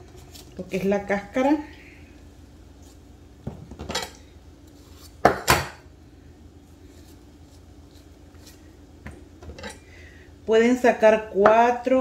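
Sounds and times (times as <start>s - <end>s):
plantains knocking on countertop: 5.2s - 5.8s.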